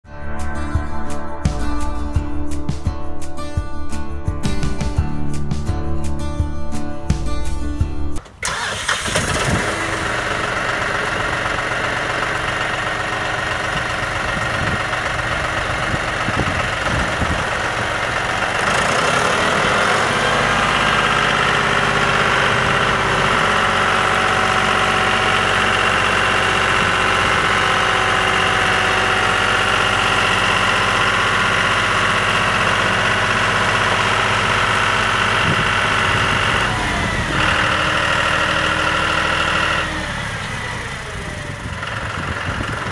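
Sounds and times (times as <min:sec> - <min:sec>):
tractor diesel engine revving: 0:08.2 - 0:42.9.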